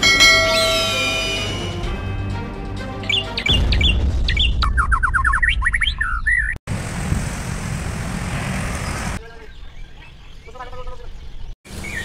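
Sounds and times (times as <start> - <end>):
songbird chirping and trilling: 3.0 - 6.6, 8.8 - 12.0.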